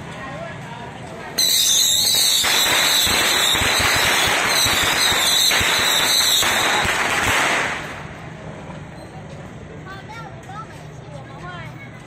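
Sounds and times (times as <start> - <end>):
high wavering whistle: 1.4 - 3.6
firecrackers popping: 1.4 - 8.4.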